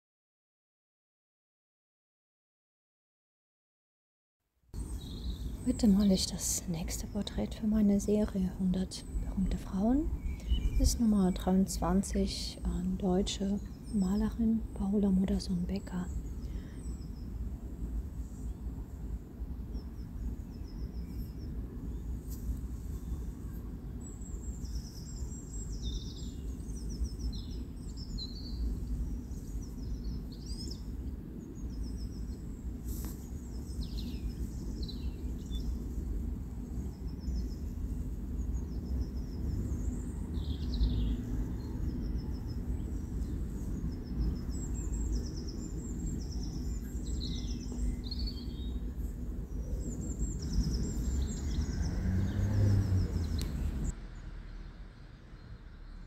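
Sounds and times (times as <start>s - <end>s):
low background rumble: 4.8s - 56.0s
birds chirping and singing: 38.6s - 48.8s.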